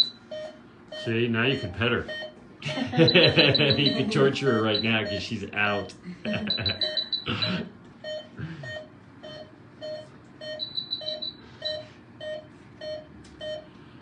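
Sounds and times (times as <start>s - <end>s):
patient monitor beeping: 0.0s - 13.8s
higher-pitched beeps: 1.0s - 5.3s, 6.3s - 13.0s.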